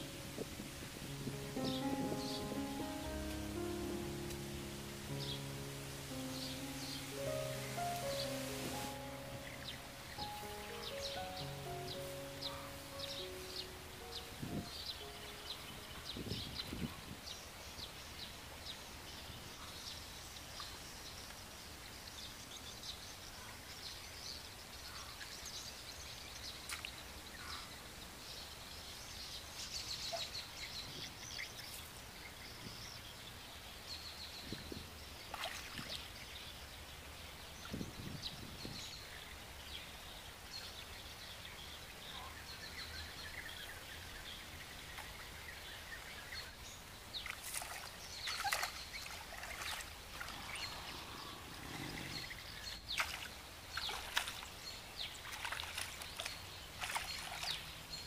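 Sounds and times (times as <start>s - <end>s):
small birds chirping: 0.0s - 58.0s
steady outdoor hiss: 0.0s - 58.0s
water and mud sloshing: 35.3s - 36.1s, 47.1s - 57.8s.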